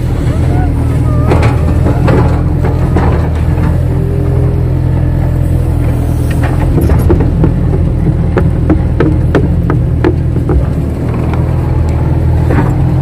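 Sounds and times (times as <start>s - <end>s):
diesel engine running: 0.0s - 13.0s
machine knocks and clatters: 5.8s - 11.7s.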